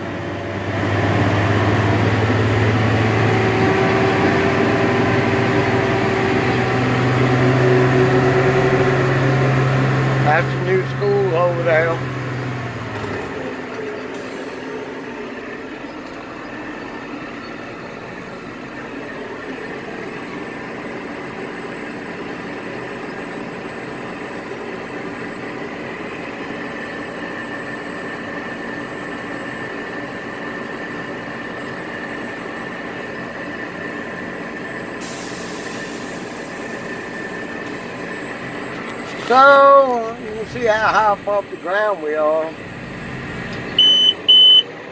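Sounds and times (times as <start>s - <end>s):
diesel engine running: 0.0s - 44.9s
higher hiss: 35.0s - 37.6s.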